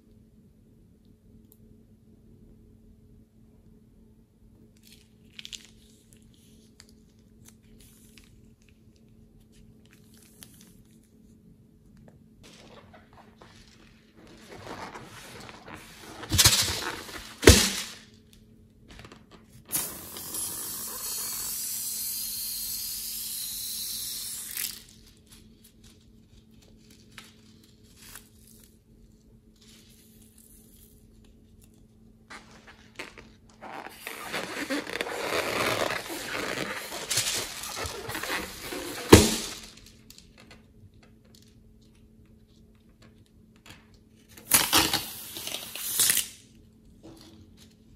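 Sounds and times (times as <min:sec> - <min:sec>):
rubber balloon snaps: 0:16.3 - 0:18.0, 0:32.4 - 0:39.8
air hissing from balloon: 0:19.7 - 0:24.8
crackling rustle: 0:29.6 - 0:40.5.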